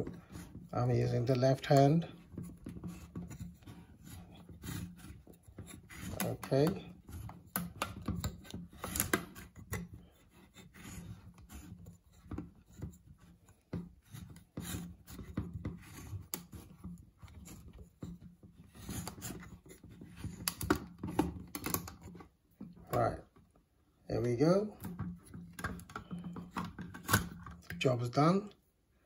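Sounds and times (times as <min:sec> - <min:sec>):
can opener grinding and scraping: 0:00.0 - 0:13.0, 0:24.8 - 0:27.8.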